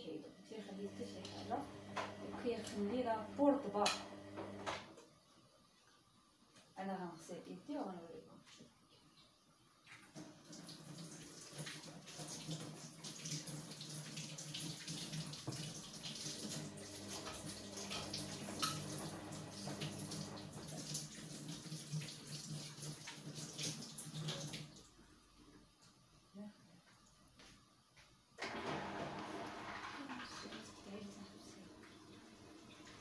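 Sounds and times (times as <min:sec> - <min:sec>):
tap running into metal sink: 0:16.4 - 0:20.9.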